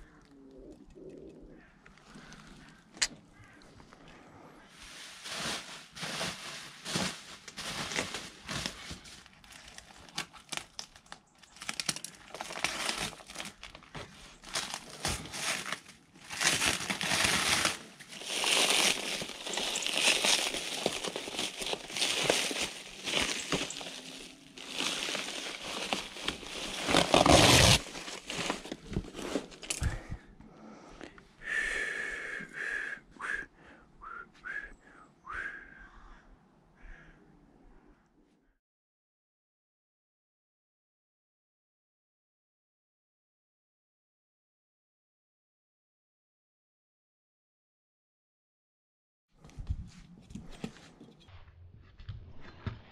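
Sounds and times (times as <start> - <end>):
plastic packaging crinkling: 4.9 - 29.8.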